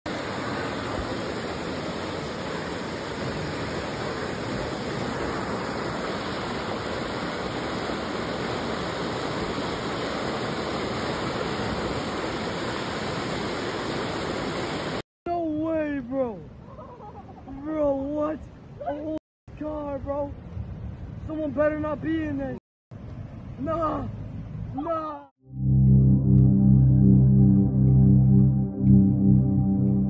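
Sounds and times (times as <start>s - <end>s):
floodwater rushing: 0.1s - 15.0s.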